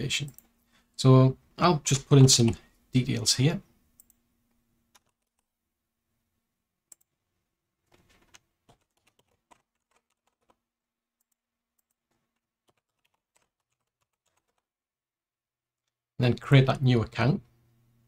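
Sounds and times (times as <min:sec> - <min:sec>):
computer keyboard typing: 0:04.9 - 0:05.5, 0:07.9 - 0:10.6, 0:11.2 - 0:14.7.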